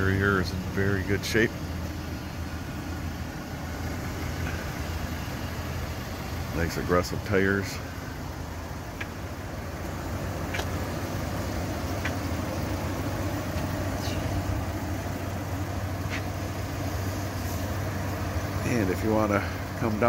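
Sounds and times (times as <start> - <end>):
engine idling: 0.0 - 20.0
faint ticks: 8.9 - 9.2, 12.0 - 12.3.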